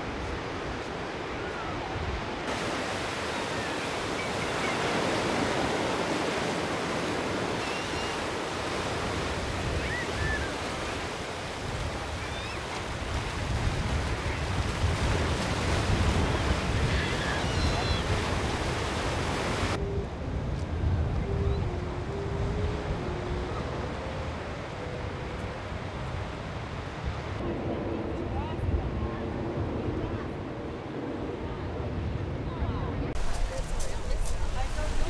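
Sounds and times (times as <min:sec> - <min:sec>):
surf breaking on beach: 0:02.4 - 0:19.8, 0:33.2 - 0:35.0
wind buffeting microphone: 0:08.7 - 0:35.0.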